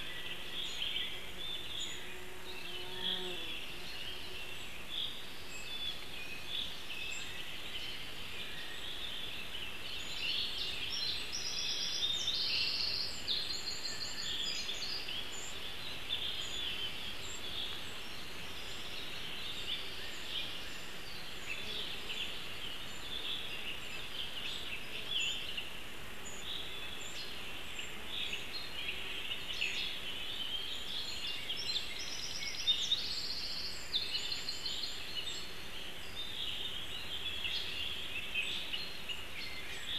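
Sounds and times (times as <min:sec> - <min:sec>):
birds singing: 0:00.0 - 0:39.9
steady background hiss: 0:00.0 - 0:39.9.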